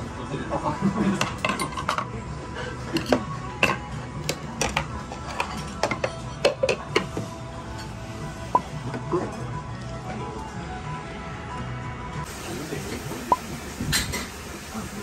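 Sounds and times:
faint background music: 0:00.0 - 0:15.0
tableware clinking: 0:01.1 - 0:02.1, 0:02.9 - 0:08.0.

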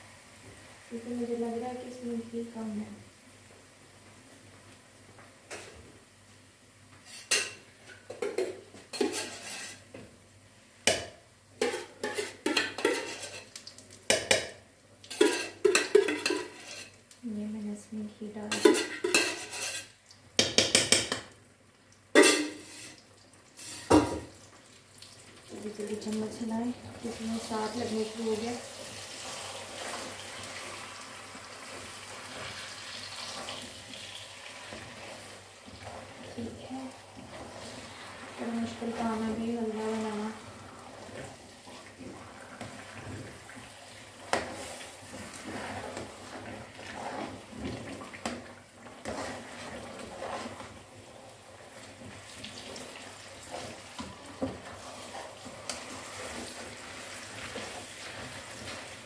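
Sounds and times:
metal spoon stirring: 0:08.2 - 0:09.8, 0:11.6 - 0:13.5, 0:15.1 - 0:17.0, 0:18.5 - 0:19.9
food hissing in a wok: 0:27.0 - 0:47.5.

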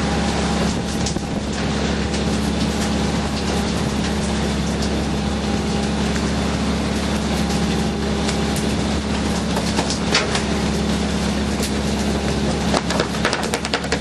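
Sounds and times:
boat engine humming: 0:00.0 - 0:14.0
knocks and clatter on deck: 0:12.7 - 0:14.0.

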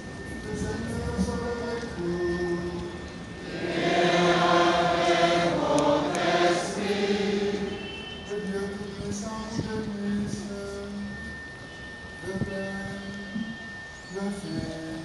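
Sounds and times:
choir singing a chant: 0:03.4 - 0:07.9.

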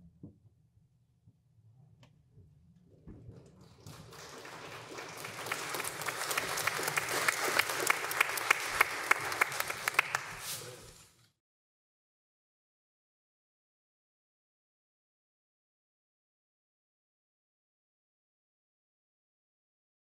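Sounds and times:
crowd applauding: 0:03.6 - 0:11.0
sharp claps close by: 0:03.9 - 0:10.7.

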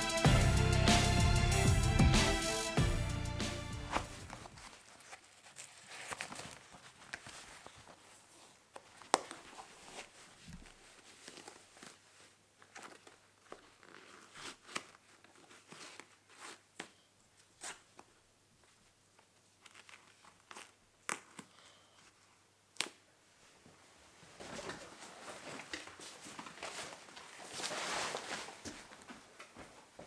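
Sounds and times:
shoelaces rustling through eyelets: 0:03.8 - 0:18.0.

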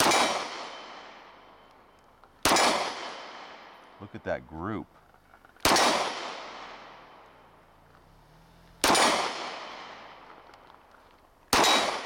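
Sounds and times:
pistol shots with echo: 0:00.0 - 0:01.6, 0:02.4 - 0:03.8, 0:05.6 - 0:07.4, 0:08.8 - 0:10.5, 0:11.5 - 0:12.0.

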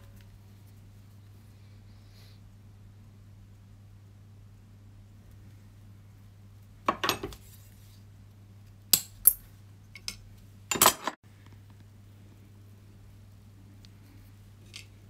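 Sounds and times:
metal tools clinking: 0:10.0 - 0:11.2.

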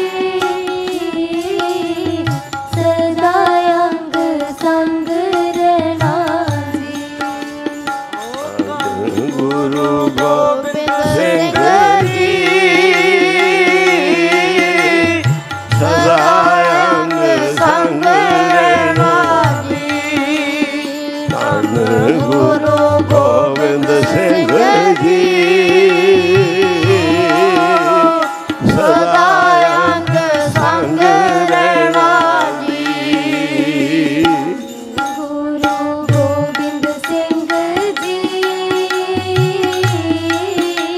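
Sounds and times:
harmonium drone: 0:00.0 - 0:40.9
tabla: 0:00.0 - 0:40.9
voices singing a hymn: 0:08.5 - 0:37.8.

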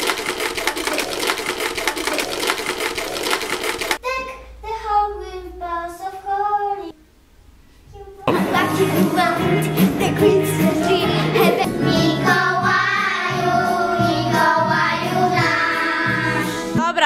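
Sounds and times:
fast even clicks: 0:00.0 - 0:04.0
girl singing: 0:04.0 - 0:07.0, 0:07.9 - 0:16.5.

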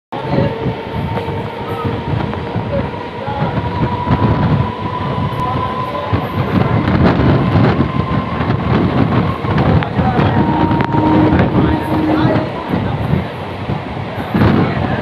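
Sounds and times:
train wheels rumbling on rails: 0:00.1 - 0:15.0
thin steady whine: 0:10.0 - 0:13.2.

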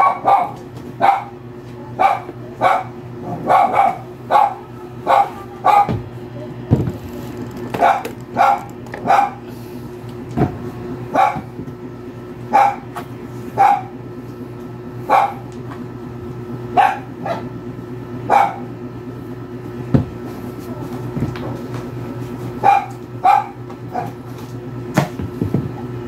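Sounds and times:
dog barking: 0:00.0 - 0:01.4, 0:02.0 - 0:06.0, 0:07.8 - 0:09.4, 0:11.1 - 0:11.5, 0:12.5 - 0:12.9, 0:13.6 - 0:13.9, 0:15.0 - 0:15.5, 0:16.7 - 0:17.5, 0:18.3 - 0:18.7, 0:22.6 - 0:24.2
steady low hum: 0:00.0 - 0:26.0.

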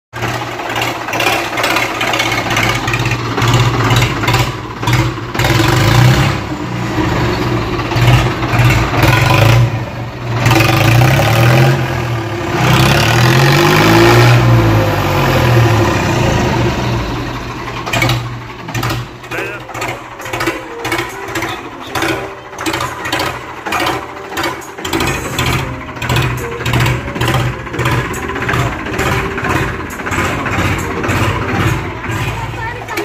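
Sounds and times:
tractor engine revving: 0:00.1 - 0:33.0.

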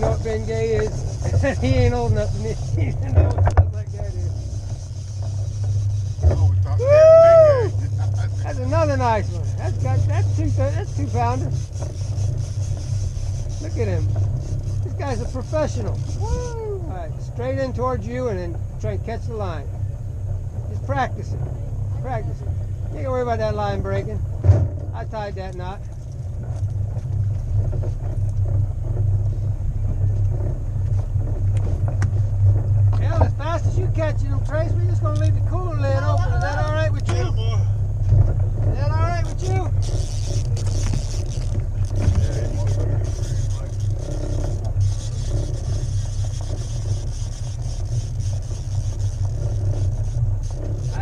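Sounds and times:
boat motor droning: 0:00.0 - 0:51.0.

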